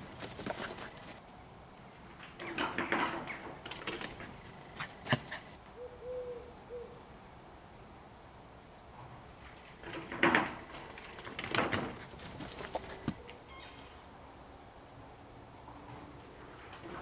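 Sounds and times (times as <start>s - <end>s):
rustling: 0.0s - 1.2s, 8.8s - 13.6s
dove cooing: 5.8s - 7.0s.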